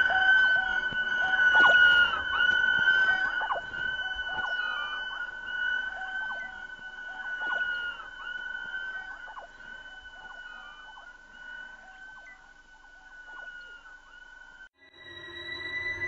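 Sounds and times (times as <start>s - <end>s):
swooping pitch glides: 0.0s - 12.4s
sustained high violin tone: 14.8s - 16.0s.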